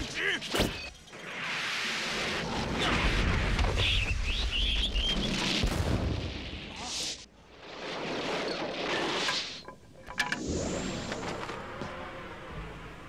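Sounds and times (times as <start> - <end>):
birds chirping: 3.8 - 5.4.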